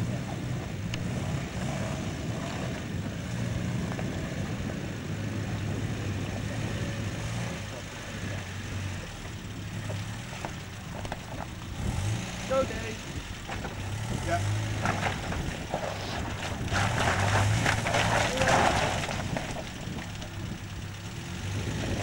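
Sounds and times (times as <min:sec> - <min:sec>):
off-road vehicle engine droning: 0:00.0 - 0:22.0.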